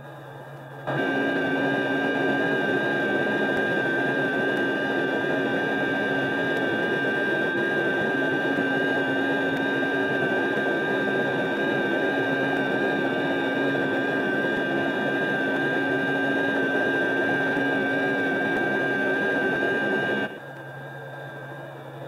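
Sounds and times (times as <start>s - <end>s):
jet engine running with whine: 0.0s - 22.0s.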